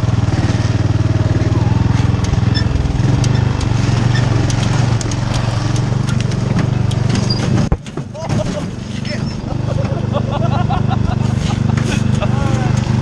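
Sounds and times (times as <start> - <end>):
riding lawn mower engine running: 0.0 - 13.0
sharp clicks: 3.1 - 7.3.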